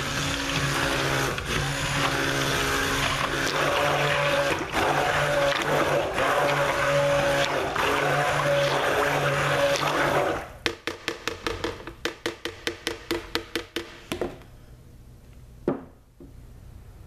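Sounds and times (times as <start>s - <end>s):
stick blender: 0.0s - 10.5s.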